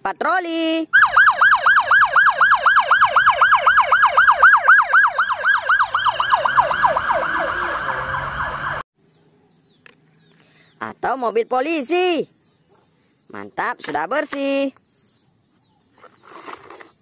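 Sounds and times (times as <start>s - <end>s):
police siren yelping: 1.0s - 8.9s.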